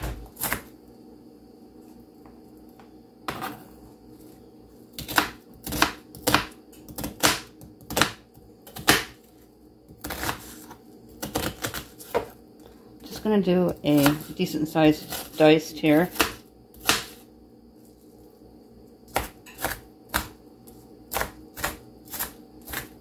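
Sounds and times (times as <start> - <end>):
knife chopping on cutting board: 5.0 - 9.2, 16.0 - 17.2, 19.1 - 20.4, 21.1 - 23.0.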